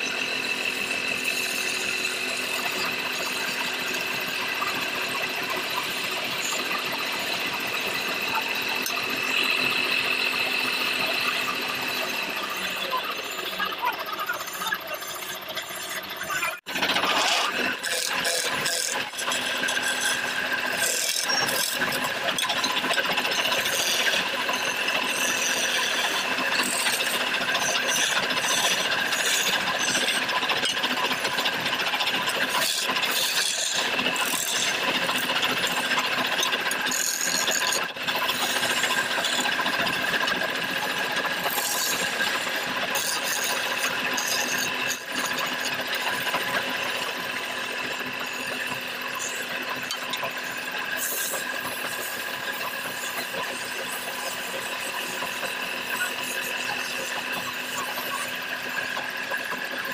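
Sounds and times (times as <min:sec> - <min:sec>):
lathe humming: 0:00.0 - 0:59.9
tool scraping wood on lathe: 0:00.0 - 0:59.9.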